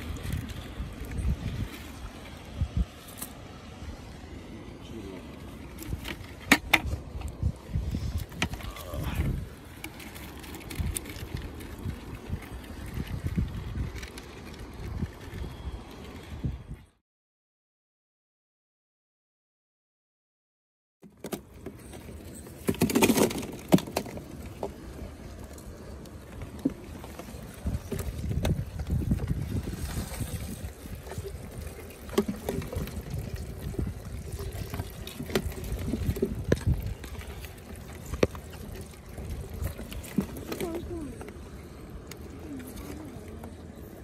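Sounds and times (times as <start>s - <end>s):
crayfish shells clicking and scrabbling: 0.0s - 2.3s, 8.1s - 15.7s, 21.0s - 43.8s.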